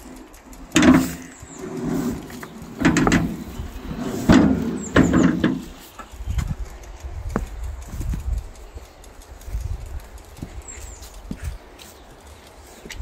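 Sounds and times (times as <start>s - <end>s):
wheelbarrow clanking and rattling: 0.0s - 6.1s
wheelbarrow squeaks: 0.7s - 6.1s.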